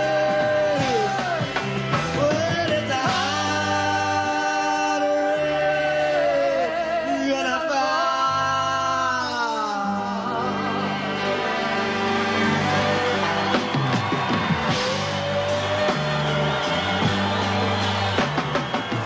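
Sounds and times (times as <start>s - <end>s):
bass line: 0.0s - 5.0s, 9.9s - 19.0s
rock band playing: 0.0s - 5.3s, 9.8s - 19.0s.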